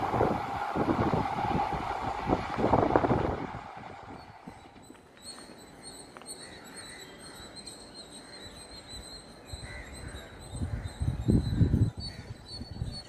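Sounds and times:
low rumbling: 0:00.0 - 0:04.9
steady high-pitched tone: 0:00.0 - 0:05.0.

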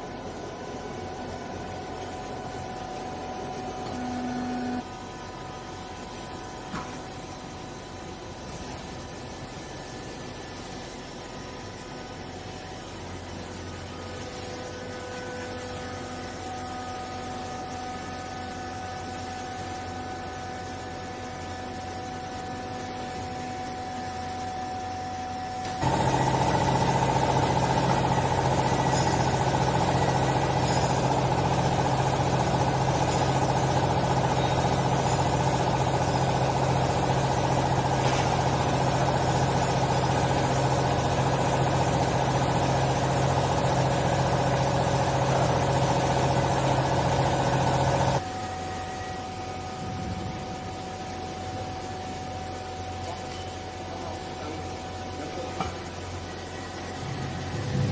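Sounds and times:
hydraulic pump motor droning: 0:00.0 - 0:08.0, 0:14.9 - 0:51.0
faint machine hum: 0:00.0 - 0:57.9.

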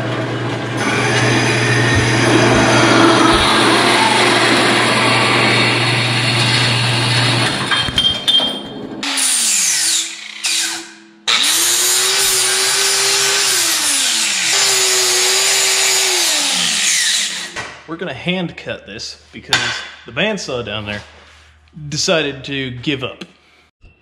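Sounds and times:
bandsaw humming: 0:00.0 - 0:07.7, 0:09.0 - 0:17.6
angle grinder cutting steel: 0:00.7 - 0:07.8, 0:09.0 - 0:17.6.

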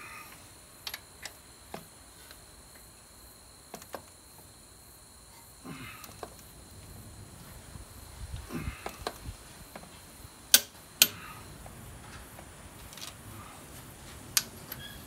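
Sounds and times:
torque wrench clicks: 0:10.5 - 0:11.2.

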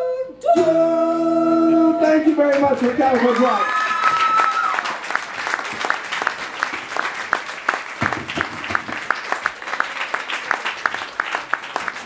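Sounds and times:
small audience applauding: 0:02.4 - 0:12.0.

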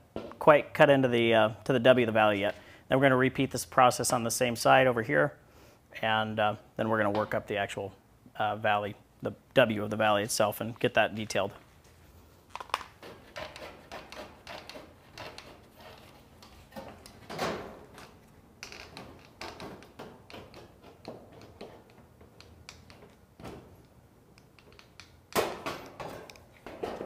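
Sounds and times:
metal snips cutting sheet metal: 0:13.1 - 0:15.6.

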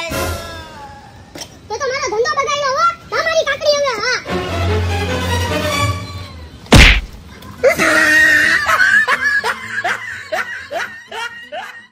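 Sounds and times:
loud sharp bang: 0:06.7 - 0:07.2.

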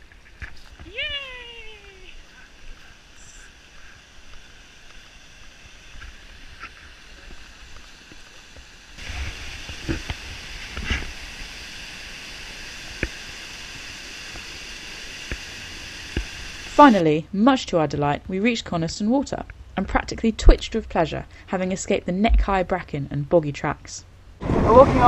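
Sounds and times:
stream rushing over boulders: 0:00.0 - 0:16.8.

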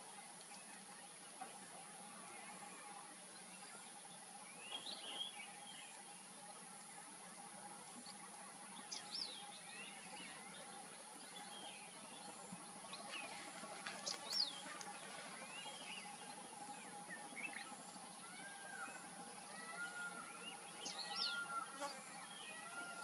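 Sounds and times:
faint background hum and hiss: 0:00.0 - 0:23.0
bird chirping: 0:15.4 - 0:23.0.

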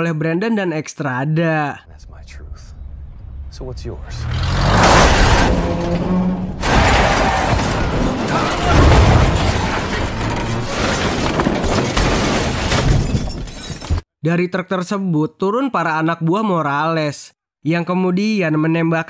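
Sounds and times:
loud vehicle impact: 0:04.4 - 0:13.1
crashing and rumbling noise: 0:04.7 - 0:14.0
glass shattering: 0:06.6 - 0:14.0.

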